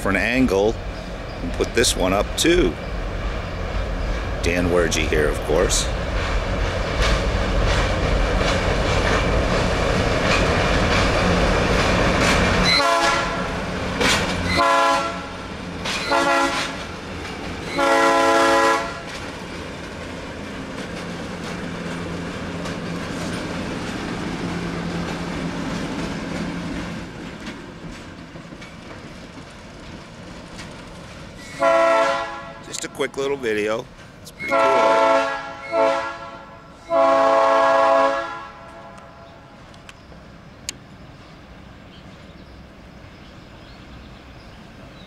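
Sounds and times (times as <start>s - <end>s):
diesel locomotive rumbling past: 0.0s - 45.0s
rolling train cars: 0.0s - 45.0s
train horn blasts: 12.6s - 13.6s, 14.5s - 15.4s, 16.0s - 16.8s, 17.7s - 19.1s, 31.4s - 32.8s, 34.4s - 39.3s.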